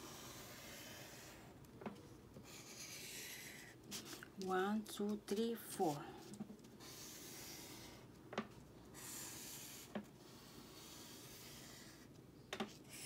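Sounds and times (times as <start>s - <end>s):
marker scratching on paper: 0.0s - 1.5s, 2.4s - 4.3s, 6.8s - 8.0s, 9.0s - 12.1s, 12.7s - 13.0s.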